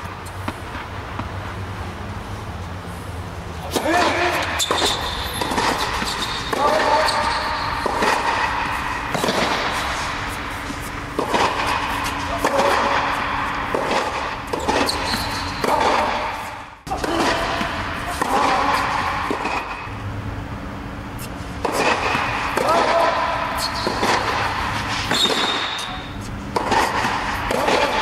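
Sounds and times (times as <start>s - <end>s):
tennis ball bouncing on court: 0.2s - 1.4s, 3.7s - 19.8s, 26.5s - 28.0s
tennis ball racket hits: 3.6s - 19.9s, 21.2s - 28.0s.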